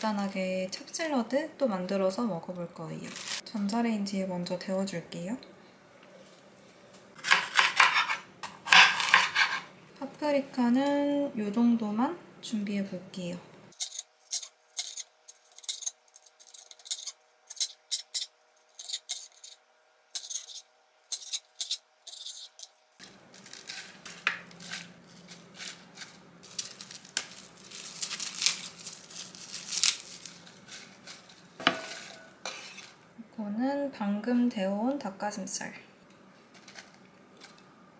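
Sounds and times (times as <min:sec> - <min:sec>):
lettuce leaves rustling: 0:03.0 - 0:03.4, 0:23.0 - 0:33.0
knife chopping on cutting board: 0:07.2 - 0:09.6, 0:31.6 - 0:32.8.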